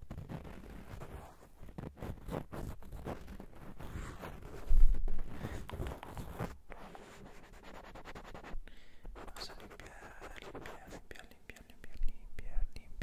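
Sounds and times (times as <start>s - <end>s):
rubbing and scratching on microphone: 0.0s - 13.0s.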